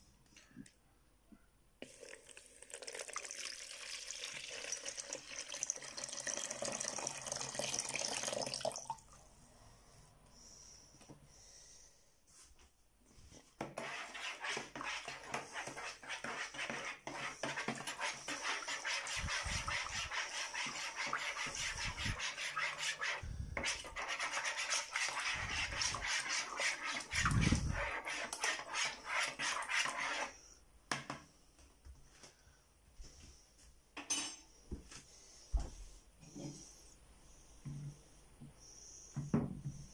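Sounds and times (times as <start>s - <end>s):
spoon stirring in plastic bowl: 13.3s - 30.3s.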